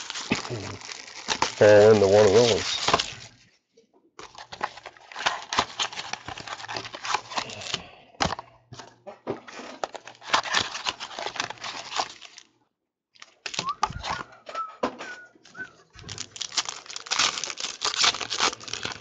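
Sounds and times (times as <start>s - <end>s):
foil packs crinkling: 0.0s - 3.4s, 4.2s - 8.4s, 9.5s - 12.5s, 13.2s - 14.4s, 15.4s - 19.0s
cardboard rubbing: 1.4s - 3.4s.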